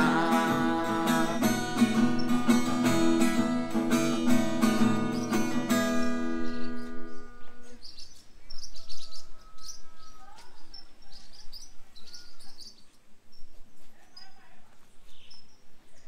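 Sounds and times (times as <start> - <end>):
acoustic guitar chord ringing: 0.0 - 7.8
birds chirping: 0.0 - 16.0.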